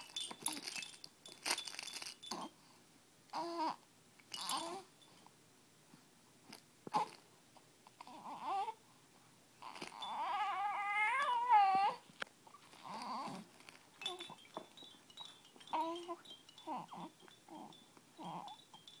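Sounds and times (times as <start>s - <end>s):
infant cooing and squealing: 8.0s - 8.8s, 9.6s - 12.0s, 15.7s - 18.6s.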